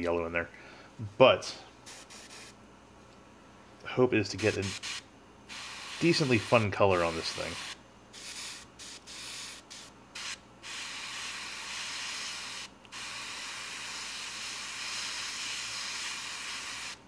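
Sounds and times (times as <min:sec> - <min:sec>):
airbrush spraying hiss: 0:01.9 - 0:02.5, 0:04.4 - 0:17.0.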